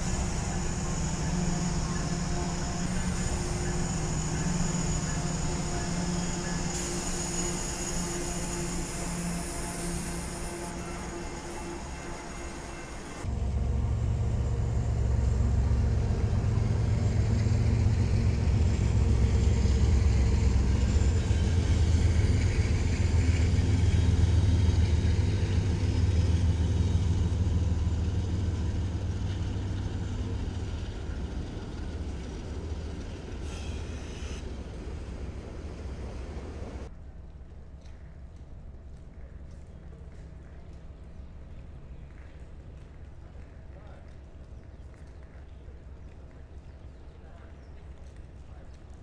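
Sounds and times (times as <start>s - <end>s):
diesel locomotives passing: 0.0s - 36.9s.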